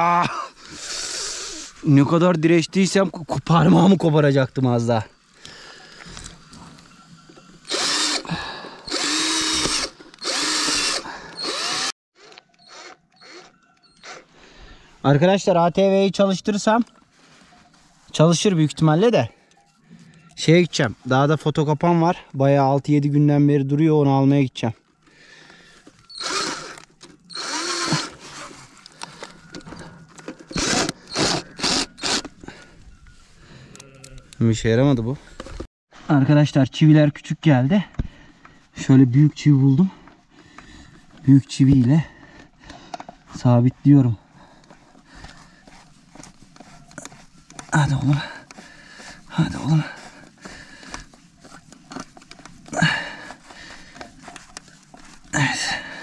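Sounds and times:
power drill whining: 0:07.6 - 0:14.3, 0:26.0 - 0:32.6.

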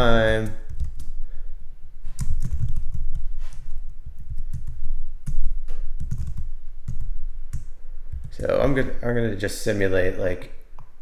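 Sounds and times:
typing on keyboard: 0:00.4 - 0:01.2, 0:02.1 - 0:08.6.

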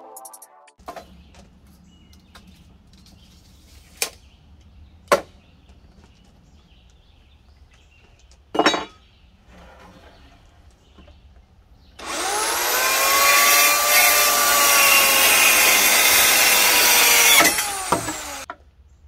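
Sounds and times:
clatter of tools and boards: 0:08.1 - 0:11.2
wooden boards knocking: 0:13.6 - 0:18.5.

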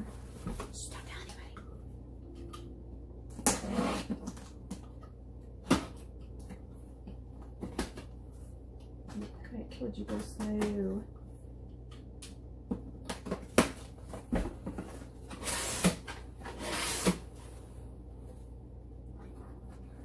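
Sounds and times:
knocks and clicks of kitchen items: 0:11.8 - 0:15.1.

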